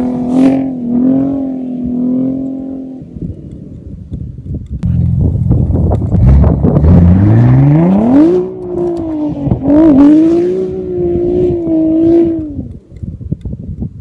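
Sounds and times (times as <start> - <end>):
car engine revving hard: 6.2 - 12.6.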